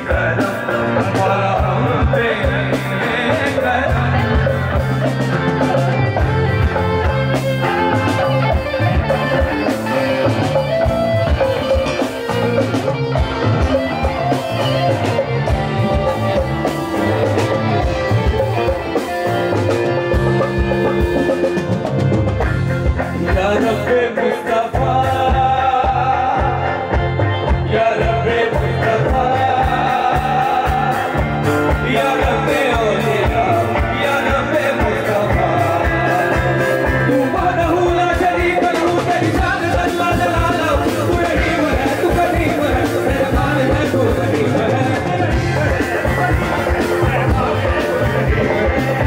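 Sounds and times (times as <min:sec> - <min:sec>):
drum kit: 0:00.0 - 0:49.0
electric guitar: 0:00.0 - 0:49.0
harmonium: 0:00.0 - 0:49.0.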